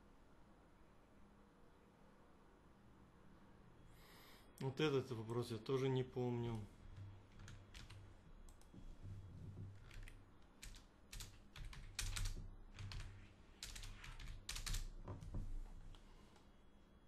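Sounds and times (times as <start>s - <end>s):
faint low hum: 0.0s - 17.0s
keyboard typing: 6.5s - 15.4s.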